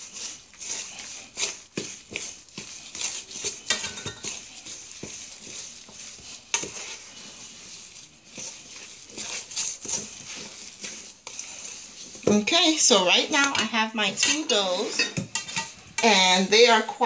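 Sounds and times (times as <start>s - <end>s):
spoon scraping metal bowl: 0.0s - 17.0s.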